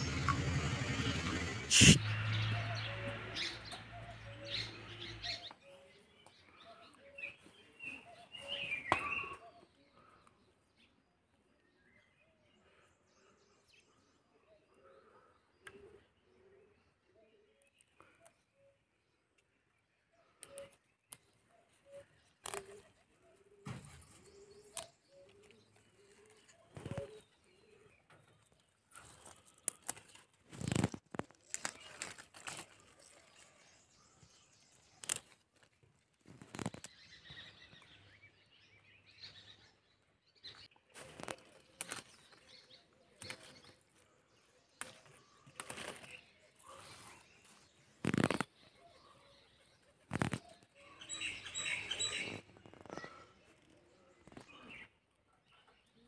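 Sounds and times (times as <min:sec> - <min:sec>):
leaves snapping and rustling: 0:22.4 - 0:22.8, 0:28.9 - 0:33.6, 0:34.8 - 0:37.0, 0:41.0 - 0:42.4, 0:43.2 - 0:43.7, 0:44.8 - 0:46.2, 0:47.4 - 0:48.5.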